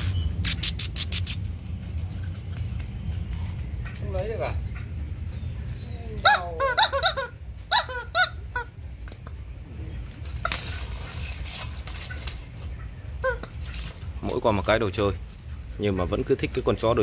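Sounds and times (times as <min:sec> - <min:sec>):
rubber squeak toy squeaking: 0:06.3 - 0:08.8, 0:13.2 - 0:13.5.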